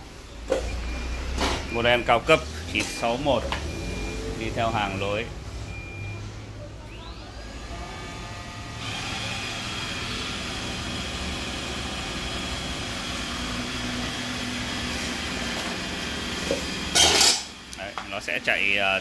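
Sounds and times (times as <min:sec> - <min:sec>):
robot vacuum motor hum: 0:07.2 - 0:16.9.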